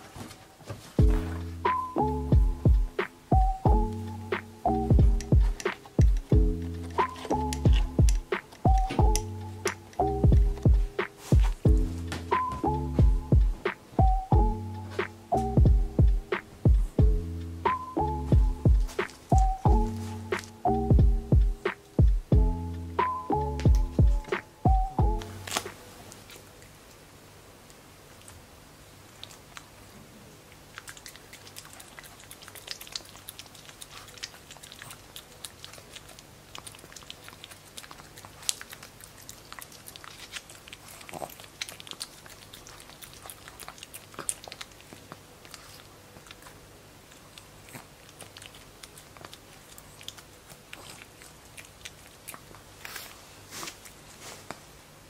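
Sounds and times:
puppy licking and lip-smacking: 2.8 - 14.3, 27.7 - 54.6.

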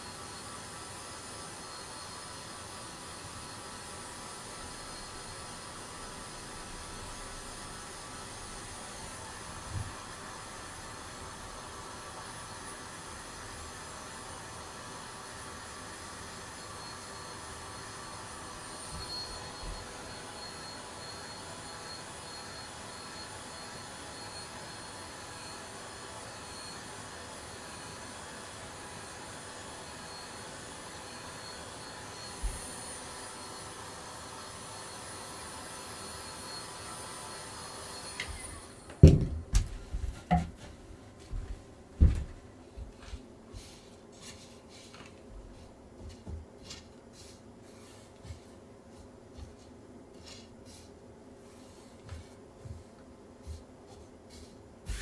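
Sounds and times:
fan motor whirring: 0.0 - 55.0
loud knocks: 39.0 - 39.6.

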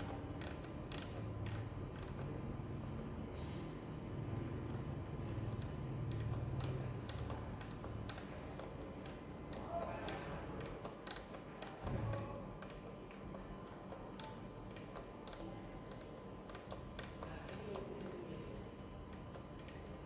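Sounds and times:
knob turning clicks: 5.5 - 18.2.

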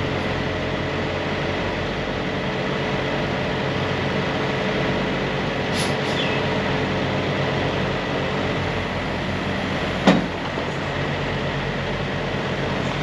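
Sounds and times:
truck engine running: 0.0 - 0.8.

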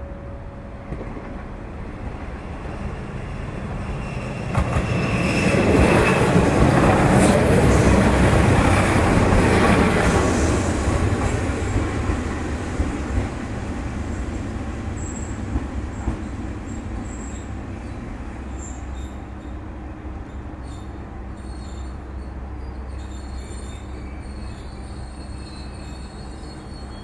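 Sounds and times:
railcar rumbling: 0.0 - 27.0
wheel squeals: 22.6 - 27.0.

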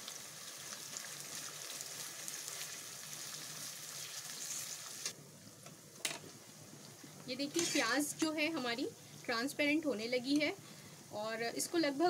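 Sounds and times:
onions sizzling in hot oil: 0.0 - 5.2, 6.6 - 10.4.

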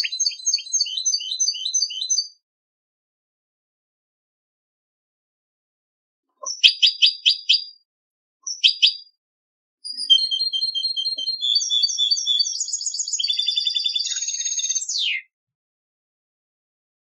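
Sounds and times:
finch singing trills: 0.0 - 2.3, 6.4 - 7.8, 8.5 - 9.1, 9.9 - 15.3.

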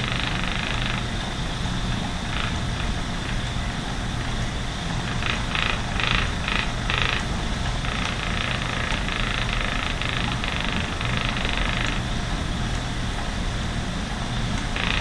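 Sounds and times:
spinning wheel whirring: 0.0 - 3.5, 4.2 - 12.1, 14.5 - 15.0.

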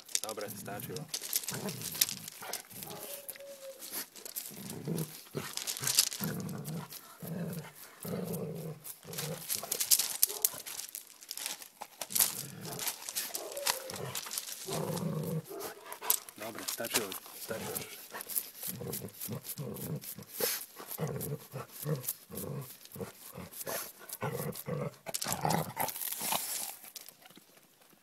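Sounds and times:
gravel crunching under paws: 0.0 - 28.0
dog growling: 0.4 - 11.4, 12.1 - 26.4
dog whining: 2.5 - 4.0, 13.3 - 14.8.

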